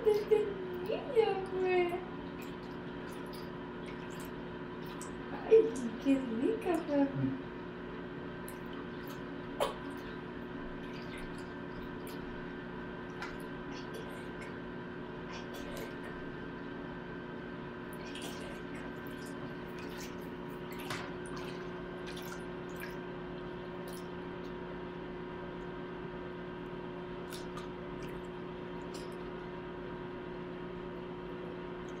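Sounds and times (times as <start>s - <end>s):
water splashing in baby bathtub: 0.0s - 7.2s, 8.4s - 16.5s, 17.8s - 24.6s, 27.2s - 29.5s
steady hum: 0.0s - 32.0s.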